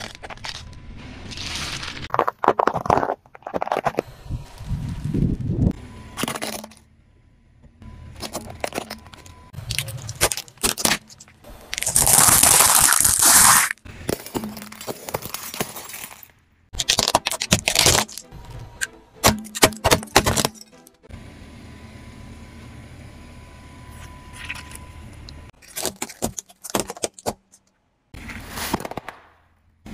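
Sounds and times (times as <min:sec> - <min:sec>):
car tyre crushing objects: 0:00.0 - 0:04.1, 0:06.1 - 0:06.9, 0:07.6 - 0:20.8, 0:25.5 - 0:29.9.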